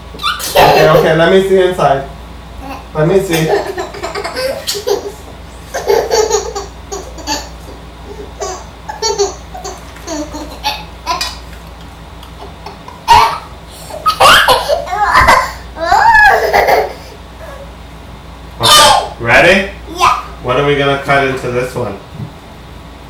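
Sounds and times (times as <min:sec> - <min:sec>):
young child laughing: 0:00.2 - 0:01.4, 0:02.6 - 0:11.6, 0:12.2 - 0:17.7.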